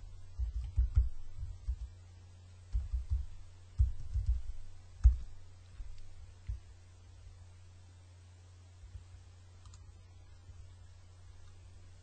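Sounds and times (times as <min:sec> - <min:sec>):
low hum: 0:00.0 - 0:12.0
computer keyboard keystrokes: 0:09.6 - 0:09.8.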